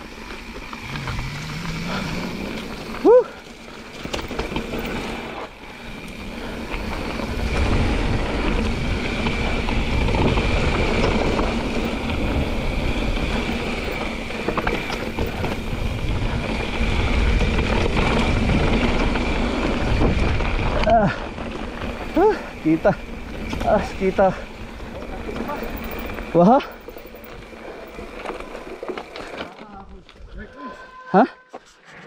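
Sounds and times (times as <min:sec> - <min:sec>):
tyres rumbling over dirt: 0:00.0 - 0:30.4
bike rattles and clicks: 0:00.0 - 0:30.7
wind buffeting microphone: 0:05.0 - 0:28.9
steady high tone: 0:30.5 - 0:31.8.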